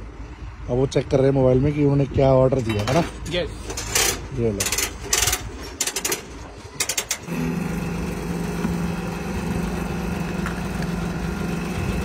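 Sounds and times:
fuel pump humming: 0:04.6 - 0:12.0.

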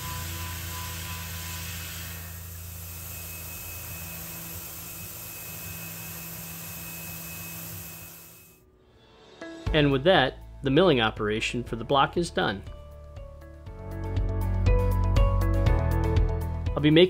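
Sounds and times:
mill spindle boring metal: 0:00.0 - 0:08.6
thin high whine: 0:00.0 - 0:08.6.

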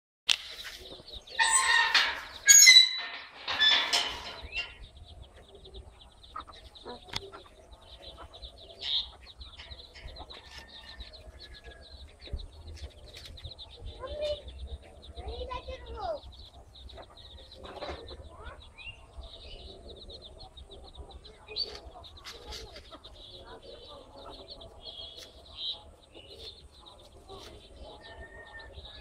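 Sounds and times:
chicks peeping: 0:00.3 - 0:29.0
harsh chicken calls: 0:00.9 - 0:04.6.

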